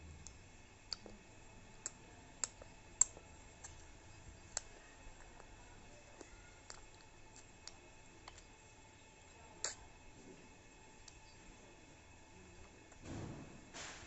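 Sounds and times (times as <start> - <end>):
baby mouth clicks and lip smacks: 0.2 - 1.2, 1.8 - 8.5, 9.6 - 9.9, 11.0 - 11.4.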